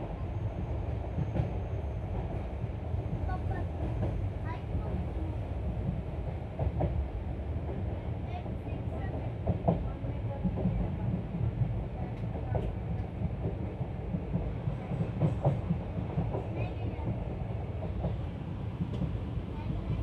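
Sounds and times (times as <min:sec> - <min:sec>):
train wheels rumbling on rails: 0:00.0 - 0:20.0.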